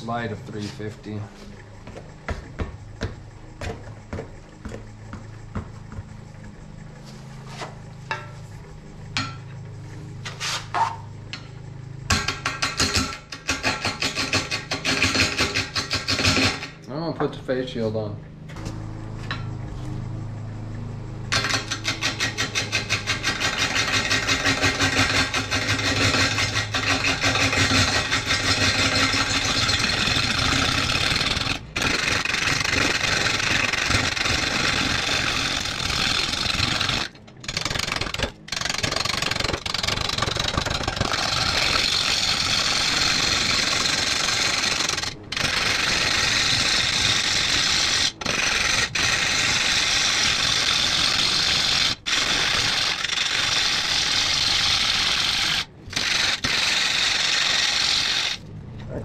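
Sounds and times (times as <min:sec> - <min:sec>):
gouge cutting wood on a lathe: 0:21.3 - 0:58.4.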